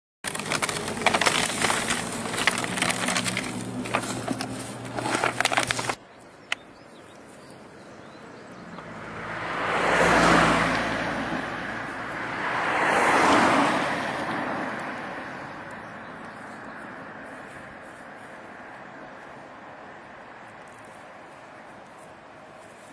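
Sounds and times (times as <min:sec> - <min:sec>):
close crackling and rustling: 0:00.2 - 0:07.7, 0:20.4 - 0:22.9
street ambience: 0:00.2 - 0:22.9
cars passing: 0:00.3 - 0:22.9.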